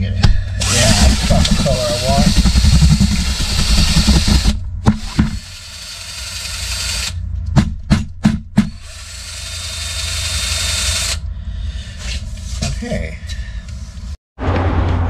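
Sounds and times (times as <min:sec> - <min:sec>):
electric drill mixing mud: 0:00.6 - 0:07.2, 0:08.8 - 0:11.2.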